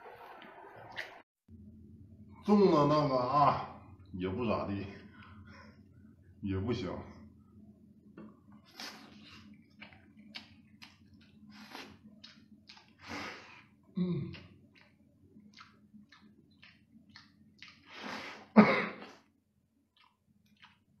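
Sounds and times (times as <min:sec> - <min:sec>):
wet chewing and sucking: 0:08.6 - 0:21.0.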